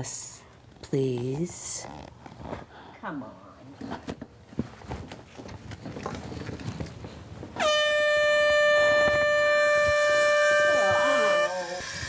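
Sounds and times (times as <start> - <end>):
canned air horn blast: 7.6 - 12.0.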